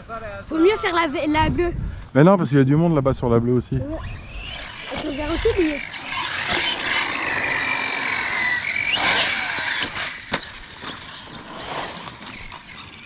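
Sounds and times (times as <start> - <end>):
electric motor whine: 3.8 - 13.0.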